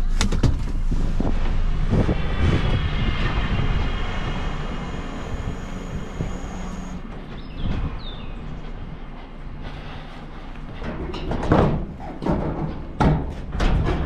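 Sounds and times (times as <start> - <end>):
diesel engine running: 1.0 - 7.4
high whine: 1.7 - 7.4.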